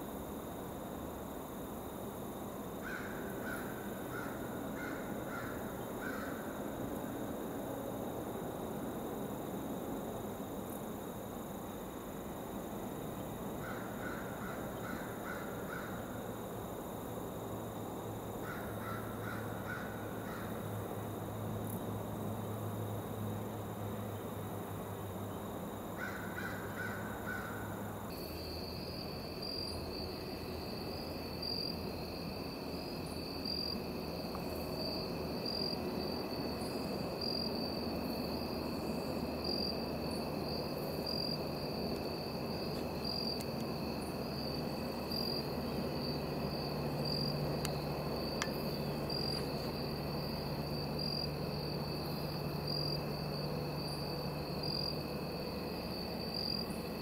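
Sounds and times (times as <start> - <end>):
insects trilling: 0.0 - 57.0
low insect drone: 0.0 - 57.0.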